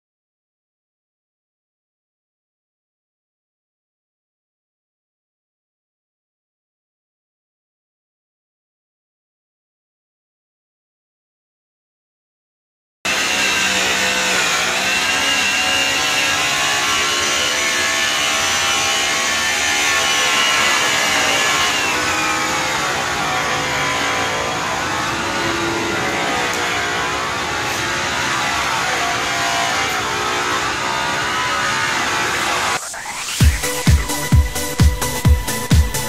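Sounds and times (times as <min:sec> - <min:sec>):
power tool motor running: 0:13.1 - 0:36.0.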